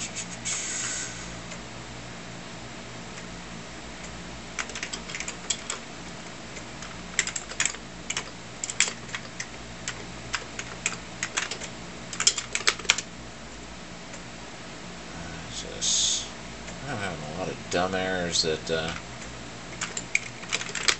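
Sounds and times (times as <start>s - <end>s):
faint low hum: 0.0s - 20.9s
keyboard typing: 4.6s - 5.8s, 6.6s - 13.1s, 19.7s - 20.9s.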